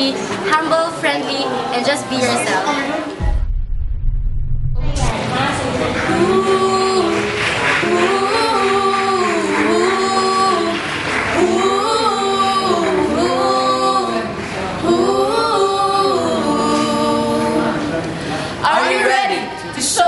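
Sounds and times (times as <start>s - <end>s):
children singing unaccompanied: 5.2s - 18.0s.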